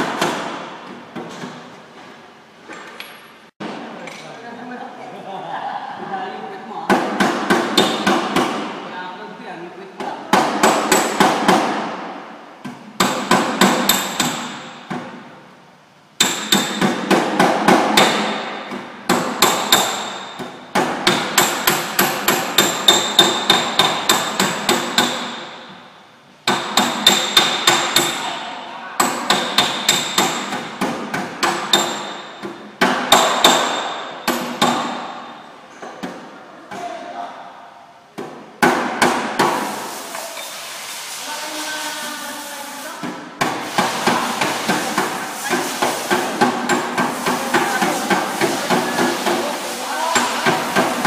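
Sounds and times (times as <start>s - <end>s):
hammer beating sheet metal: 0.0s - 0.8s, 6.9s - 8.9s, 10.3s - 12.3s, 13.0s - 15.1s, 16.2s - 25.8s, 26.4s - 28.4s, 29.0s - 35.4s, 38.6s - 40.0s, 43.0s - 51.0s.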